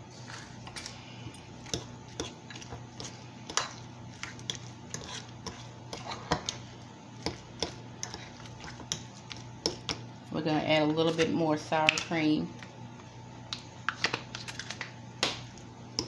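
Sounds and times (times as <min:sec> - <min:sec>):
metal spoon scraping ceramic bowl: 0:03.5 - 0:06.4.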